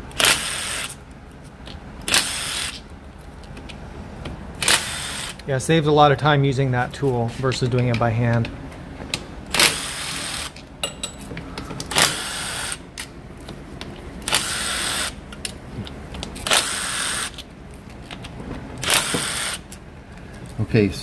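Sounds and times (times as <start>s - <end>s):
power driver spinning bolts: 1.6s - 2.8s, 13.4s - 19.8s.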